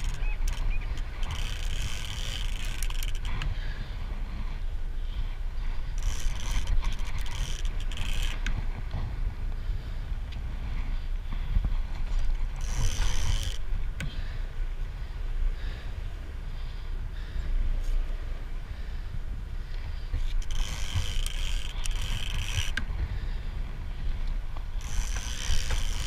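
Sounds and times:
boat engine rumbling: 0.0s - 5.1s, 5.7s - 9.2s, 18.3s - 26.0s
wind on microphone: 0.0s - 26.0s.

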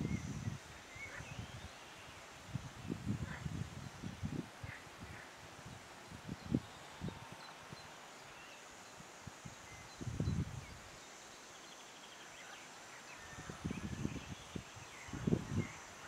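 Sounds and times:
wind buffeting microphone: 0.0s - 1.7s, 2.4s - 7.9s, 9.4s - 10.8s, 13.3s - 15.9s
steady hiss: 0.0s - 16.0s.

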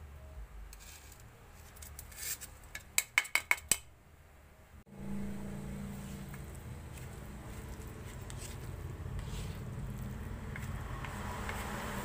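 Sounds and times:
low hum: 4.3s - 11.0s.

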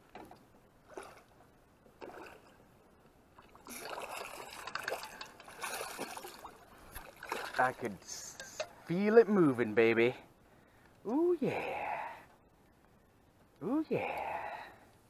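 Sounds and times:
fish thrashing and water splashing: 0.8s - 2.6s, 3.3s - 8.8s.

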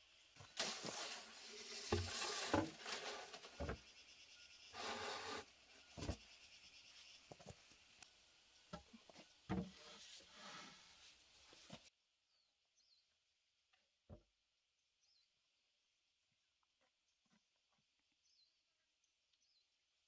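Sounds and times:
bamboo scraping: 0.4s - 4.0s, 4.7s - 6.2s, 8.8s - 11.9s.

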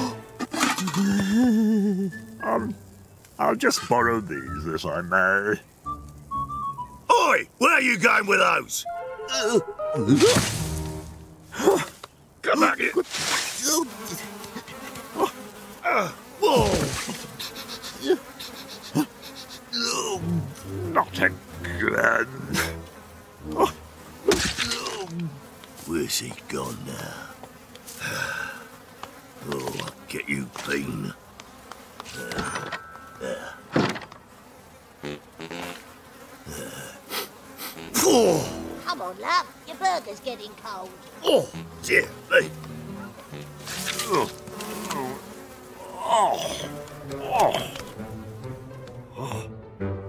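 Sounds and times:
cartoon flies buzzing: 9.0s - 12.0s, 12.8s - 49.3s
loud thump: 33.7s - 34.1s
short grunt: 36.5s - 38.6s.

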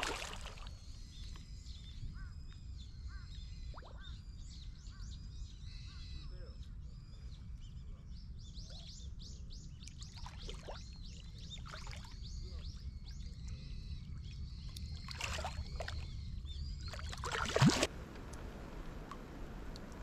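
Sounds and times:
fish splashing in water: 0.0s - 0.7s, 14.8s - 16.1s, 16.8s - 18.3s
low wind rumble: 0.0s - 20.0s
small bird chirping: 5.6s - 17.6s.

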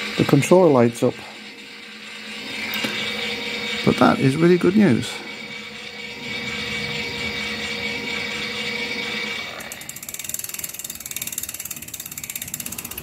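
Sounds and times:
electric hub motor humming: 0.0s - 13.0s
freewheel hub ratchet clicking: 5.0s - 13.0s.

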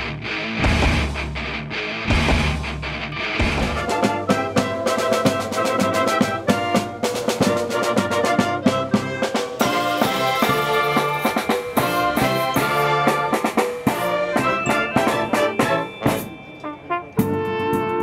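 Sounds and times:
steady drum beat: 0.0s - 16.4s
wind band playing: 3.6s - 18.0s.

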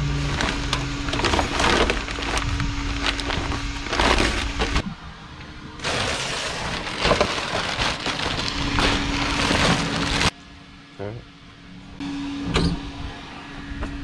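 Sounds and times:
plastic bag rustling and crinkling: 0.0s - 4.8s, 5.8s - 10.3s.

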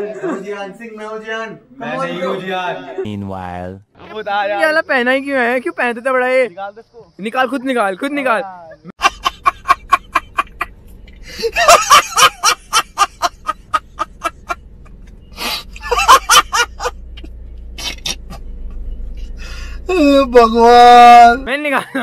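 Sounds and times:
man laughing hard: 9.0s - 10.7s, 11.3s - 14.6s, 15.4s - 16.9s.

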